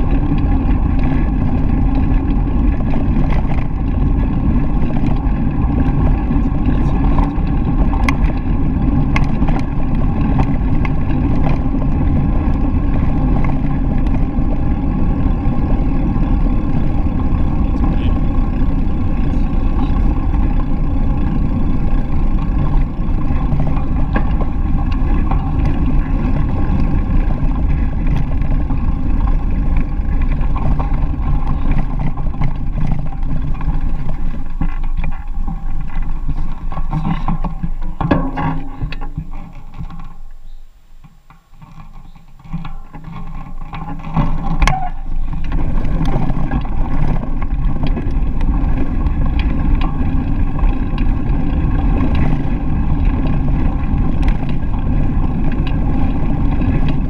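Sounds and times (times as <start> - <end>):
bicycle tyres rolling on gravel: 0.0 - 57.0
wind buffeting microphone: 41.6 - 57.0.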